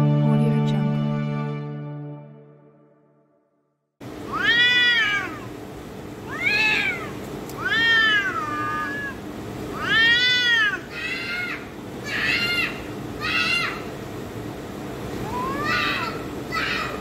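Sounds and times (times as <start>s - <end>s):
cats yowling: 4.2s - 5.6s, 6.2s - 13.9s, 15.2s - 17.0s.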